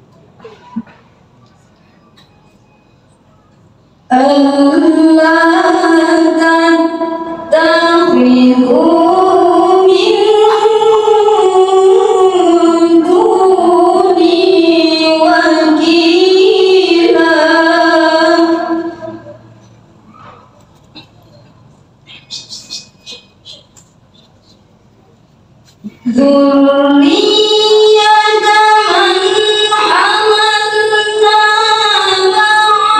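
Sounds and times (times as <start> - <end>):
woman chanting over loudspeakers: 4.1 - 19.6, 26.0 - 32.9.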